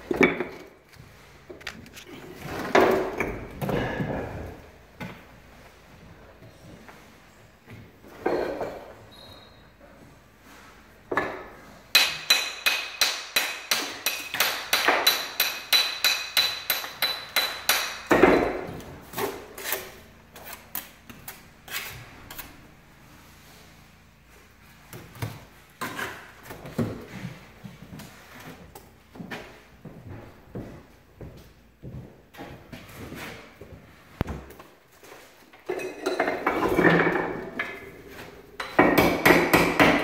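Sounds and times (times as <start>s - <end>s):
hammer striking stone: 11.9s - 18.6s.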